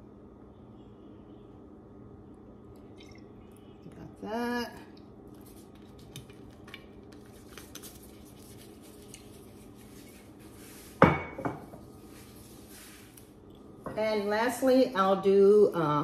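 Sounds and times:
bottle clunk on stone countertop: 11.0s - 11.7s.

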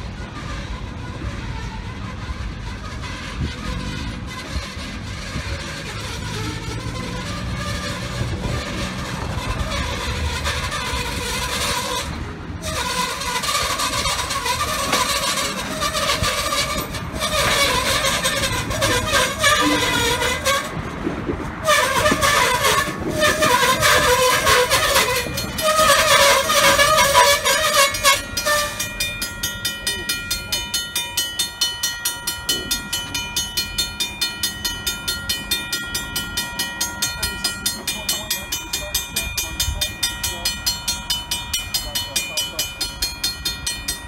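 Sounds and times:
freight train rolling past: 0.0s - 44.0s
crossing bell ringing: 4.8s - 44.0s
wavering squeal: 6.0s - 20.8s, 21.6s - 44.0s.

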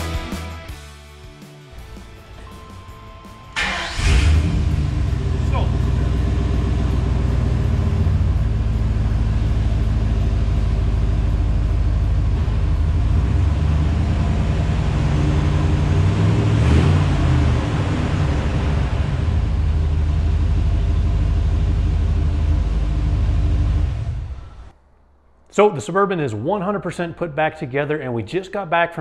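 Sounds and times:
engine running: 2.0s - 24.8s.

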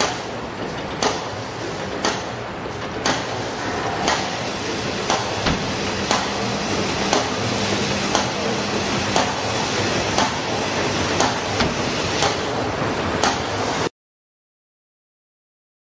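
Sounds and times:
machine running noise: 0.0s - 13.9s
machine sharp knocks: 0.8s - 13.6s.

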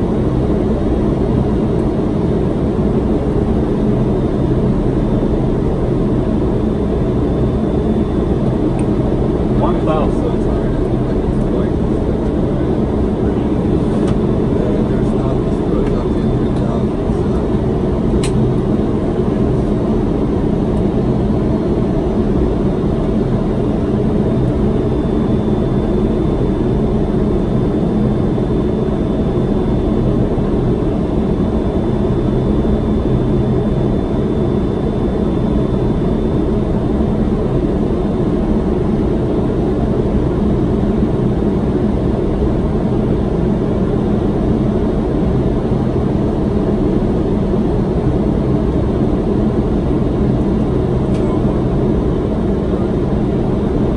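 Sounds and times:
airflow and engine noise: 0.0s - 53.9s
click: 18.2s - 18.4s.

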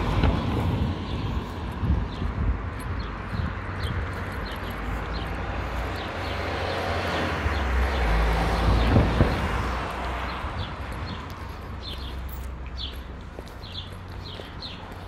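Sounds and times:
car passing: 4.4s - 12.4s.

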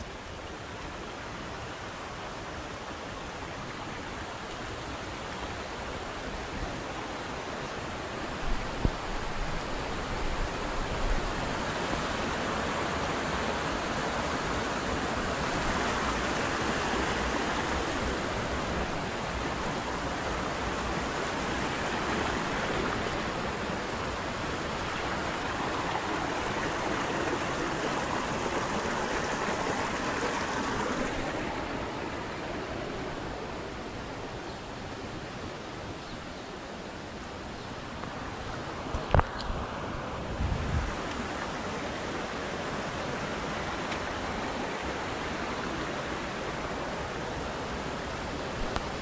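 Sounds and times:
river rushing over boulders: 0.0s - 49.0s.

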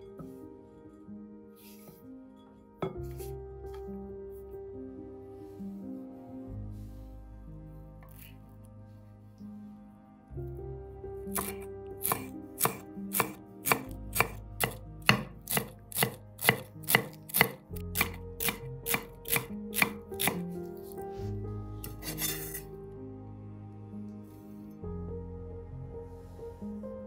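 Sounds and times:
soft background music: 0.0s - 27.0s
knife chopping food: 11.3s - 20.4s
scraping sound: 21.8s - 22.7s.

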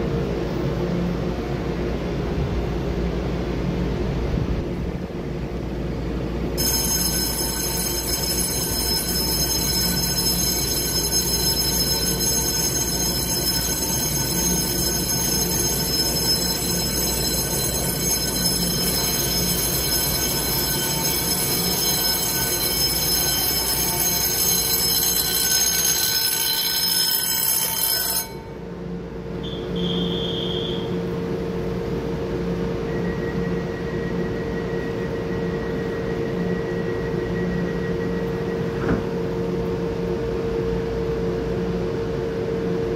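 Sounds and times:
train hum: 0.0s - 42.9s
electric station bell ringing: 5.5s - 42.9s
short high beep: 29.4s - 30.9s.

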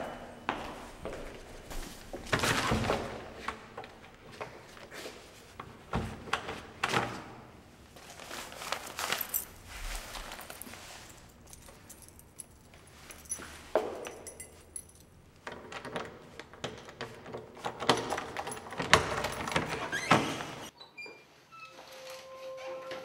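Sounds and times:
footsteps: 0.0s - 2.5s, 8.0s - 15.0s
keys jangling: 8.8s - 15.3s, 17.8s - 20.0s.

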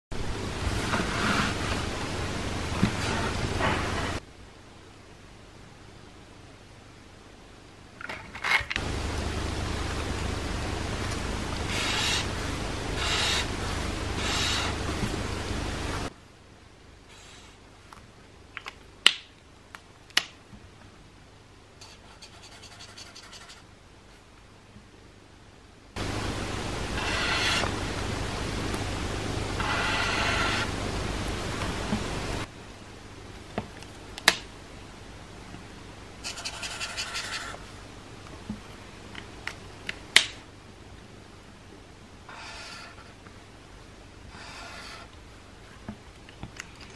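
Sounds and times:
marker scratching on paper: 0.7s - 1.9s, 2.8s - 4.2s, 11.6s - 15.2s, 17.1s - 17.6s, 21.8s - 23.7s, 27.0s - 27.7s, 29.6s - 30.7s, 36.2s - 37.6s, 44.3s - 45.1s.

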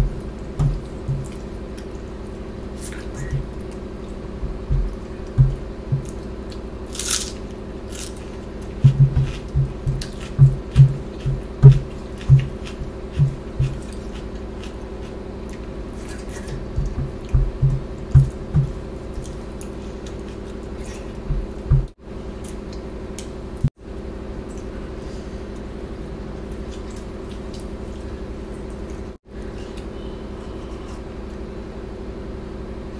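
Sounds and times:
person chewing food: 0.6s - 23.3s.

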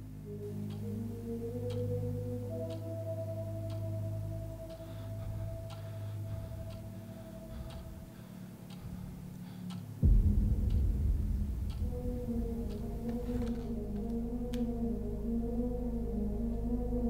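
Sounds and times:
clock ticking: 0.0s - 17.0s
low ambient drone: 0.0s - 17.0s
deep rumble: 10.0s - 17.0s.

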